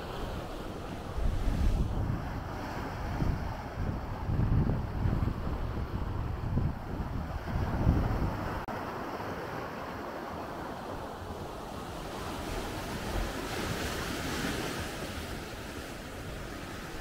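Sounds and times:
wind on microphone: 0.0s - 9.6s
sea waves washing onto beach: 0.0s - 17.0s.

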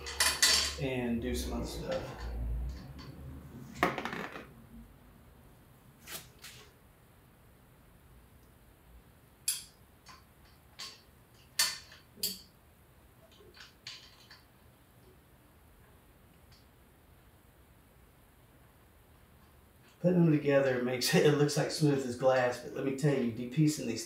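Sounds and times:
metal clank: 0.0s - 0.8s
metal tools clinking: 0.0s - 0.9s.

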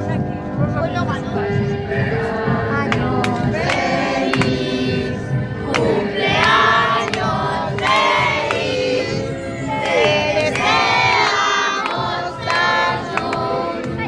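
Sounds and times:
children singing together: 5.7s - 14.0s.

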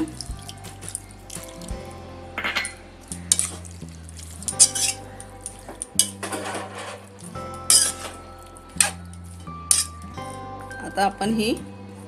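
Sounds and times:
metal spoon scraping a metal pot: 4.4s - 8.2s.

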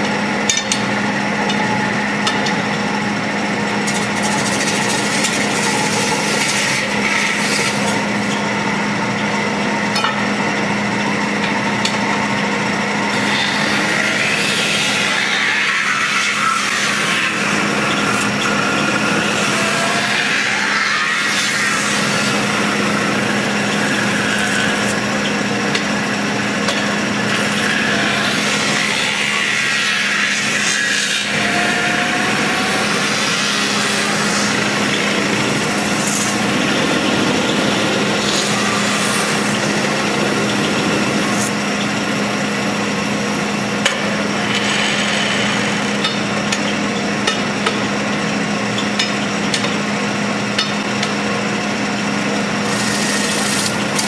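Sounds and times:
lathe humming: 0.0s - 54.0s
tool scraping spinning metal: 3.6s - 8.5s, 13.0s - 47.4s, 52.6s - 54.0s.

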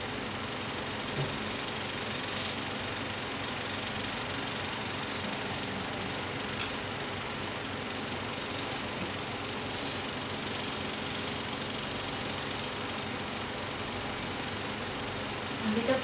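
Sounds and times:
kitchen exhaust fan running: 0.0s - 16.0s.

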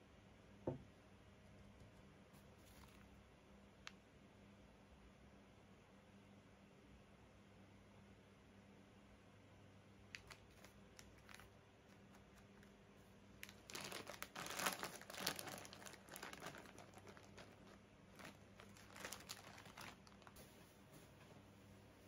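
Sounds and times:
packaging rustling: 2.6s - 3.1s, 10.2s - 12.4s, 13.4s - 20.5s
plastic snack bag crinkling: 2.6s - 3.2s, 10.1s - 12.7s, 13.4s - 20.4s.

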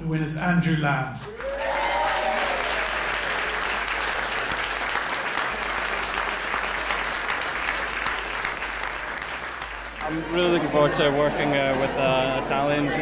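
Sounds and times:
audience applauding: 1.2s - 13.0s.

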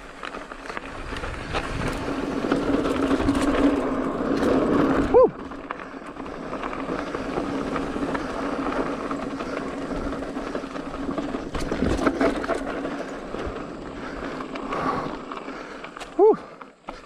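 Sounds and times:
bike tyres on dirt trail: 0.0s - 17.0s
bike knocks and rattles: 0.6s - 5.9s, 6.6s - 14.8s.

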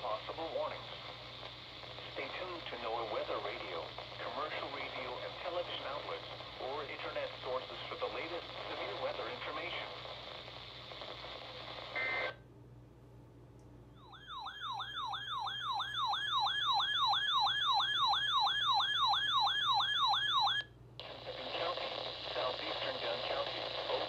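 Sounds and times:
broadcast voice through radio speaker: 0.0s - 12.3s, 21.0s - 24.0s
electronic sweeping siren: 14.0s - 20.7s.

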